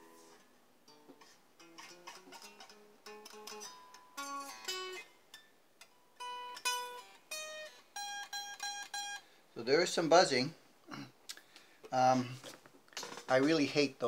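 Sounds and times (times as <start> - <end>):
electric guitar picking: 0.0 - 9.3
guitar string buzzing: 1.6 - 5.0.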